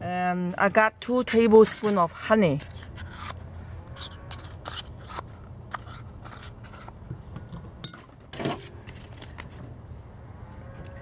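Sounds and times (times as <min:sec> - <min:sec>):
metal spoon scraping paper cup: 0:01.5 - 0:07.0.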